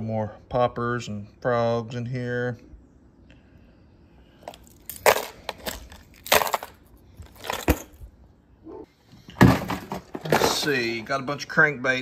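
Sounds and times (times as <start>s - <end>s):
plastic tackle rustling and clattering: 4.5s - 8.0s, 9.4s - 10.8s.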